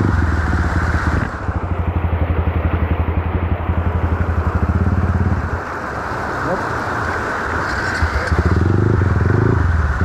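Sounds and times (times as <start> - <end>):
dirt bike engine idling: 0.0 - 5.9
mountain stream rushing: 0.0 - 10.0.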